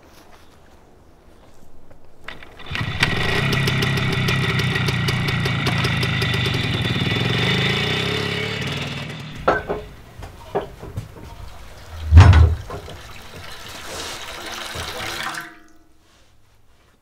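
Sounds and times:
small motorcycle engine running: 2.3 - 9.4.

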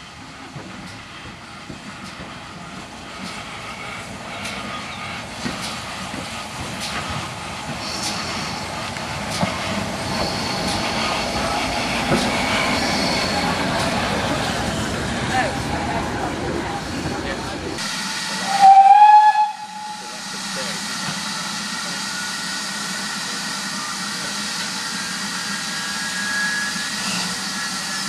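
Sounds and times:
steam locomotive passing: 0.0 - 28.0
high-pitched squeals: 10.0 - 14.8.

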